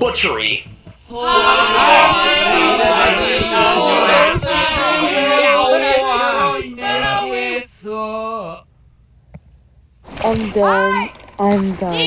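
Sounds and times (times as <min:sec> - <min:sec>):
layered chorus of sung voices: 0:01.1 - 0:08.6.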